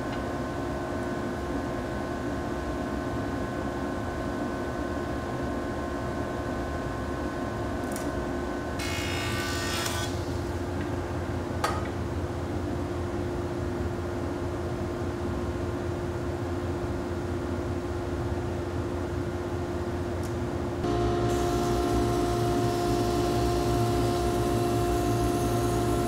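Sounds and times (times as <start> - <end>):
jointer cutting wood: 20.9 - 26.0.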